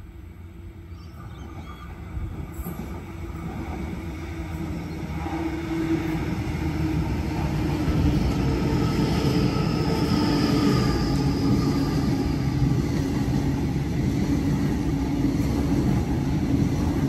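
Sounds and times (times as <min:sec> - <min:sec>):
electric train whine: 0:00.0 - 0:17.0
train wheels rumbling on rails: 0:00.0 - 0:17.0.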